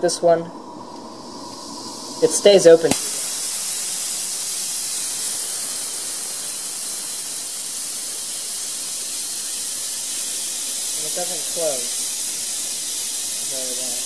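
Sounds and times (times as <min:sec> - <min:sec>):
steam valve hissing: 0:00.0 - 0:14.0.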